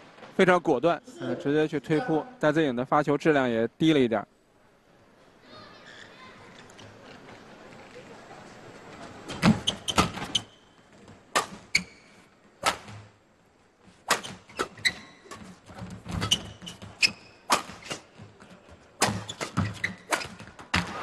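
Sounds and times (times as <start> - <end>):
court shoes squeaking: 9.1 - 13.1, 14.1 - 21.0
rackets hitting shuttlecock: 11.3 - 11.8, 12.6 - 13.1, 14.1 - 15.6, 17.5 - 18.1, 19.0 - 21.0.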